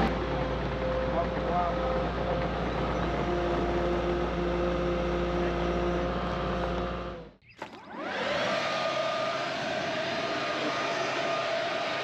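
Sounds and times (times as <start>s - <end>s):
diesel engine rumbling: 0.0s - 7.4s
leaf blower whine: 1.4s - 12.0s.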